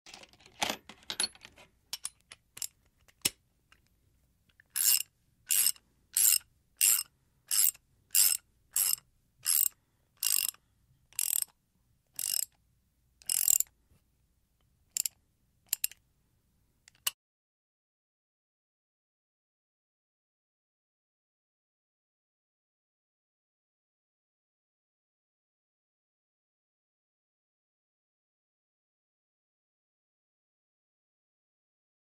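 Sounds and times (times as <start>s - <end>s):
ratchet wrench clicking: 4.8s - 10.6s, 11.2s - 11.5s, 12.2s - 12.6s, 13.2s - 13.7s, 15.0s - 16.0s.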